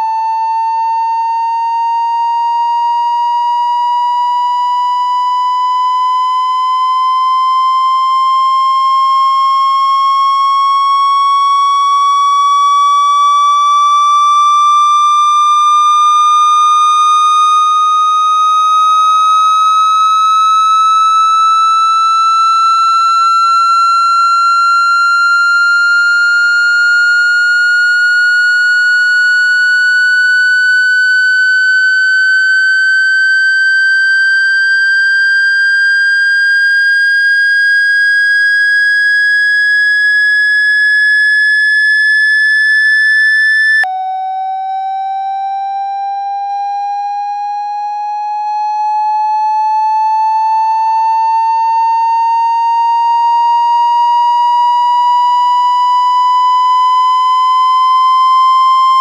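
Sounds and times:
rising electronic tone: 23.8s - 45.4s, 56.8s - 59.0s.

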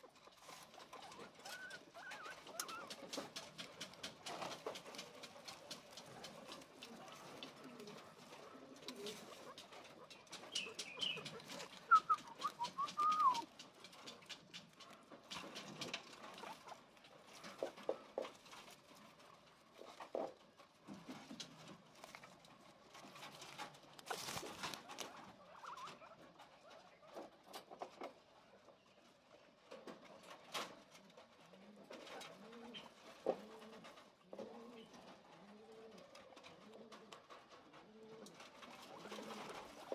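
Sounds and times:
guinea pigs chewing grass: 0.0s - 39.9s
guinea pig chirping calls: 0.4s - 3.0s, 10.0s - 13.5s, 24.9s - 27.2s.

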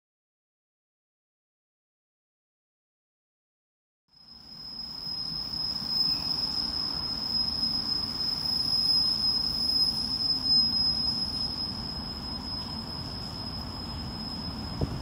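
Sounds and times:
high-pitched whine: 4.1s - 15.0s
diesel locomotive engine rumble: 4.6s - 15.0s.

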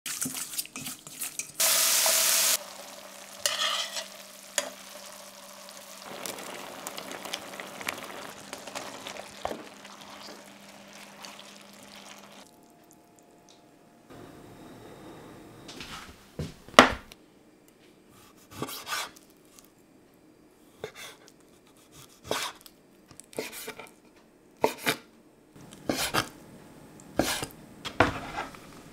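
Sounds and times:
spatula stirring in metal bowl: 0.1s - 1.6s, 3.4s - 4.8s
pan sizzling and bubbling: 0.1s - 13.3s
loud sizzling: 1.6s - 12.4s.

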